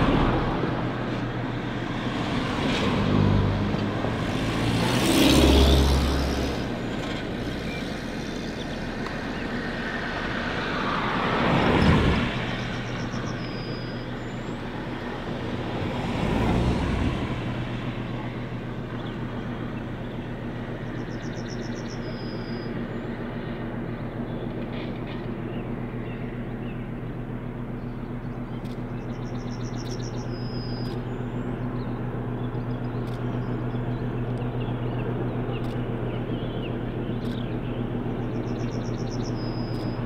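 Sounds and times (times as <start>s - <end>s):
diesel locomotive engine humming: 0.0s - 40.0s
road vehicles passing: 0.0s - 40.0s
bird trilling: 32.6s - 40.0s.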